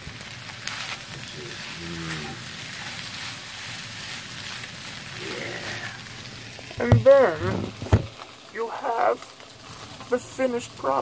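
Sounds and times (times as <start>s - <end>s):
eggs and potatoes sizzling in pan: 0.0s - 11.0s
spatula scraping pan: 0.6s - 5.8s.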